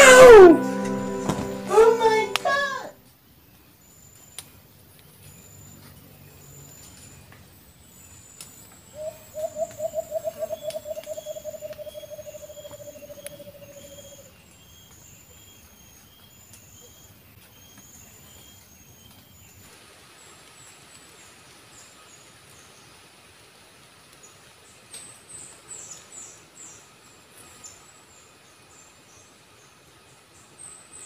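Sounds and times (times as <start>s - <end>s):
dove hooting: 9.0s - 14.2s.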